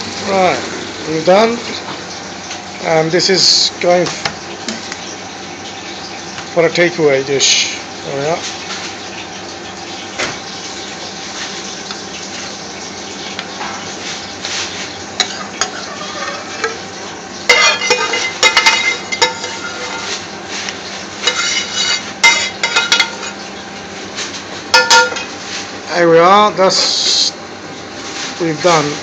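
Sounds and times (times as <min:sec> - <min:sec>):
light sizzle: 0:00.0 - 0:27.3
metal spoon clanking on pan: 0:15.2 - 0:16.8, 0:17.5 - 0:20.1, 0:21.2 - 0:23.4, 0:24.7 - 0:25.3.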